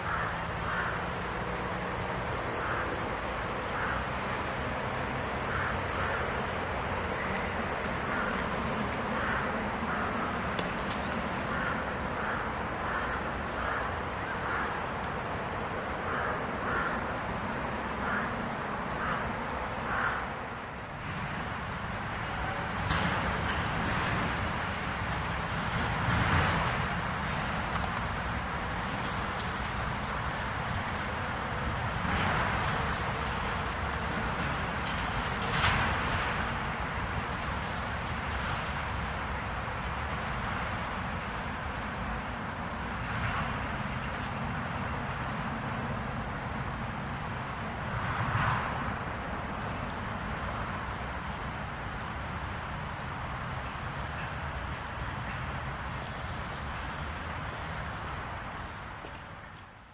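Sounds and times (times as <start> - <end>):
bird calling: 0.0 - 4.2, 15.9 - 20.3
distant traffic rumble: 0.0 - 59.9.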